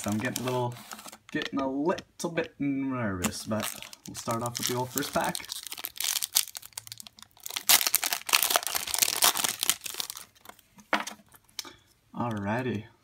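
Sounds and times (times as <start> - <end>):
wrapper crinkling as torn open: 0.0 - 1.2, 3.2 - 10.6.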